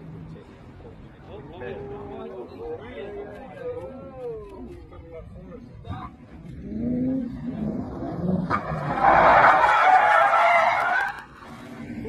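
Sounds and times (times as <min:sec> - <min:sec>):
tyres skidding: 0:06.1 - 0:12.0.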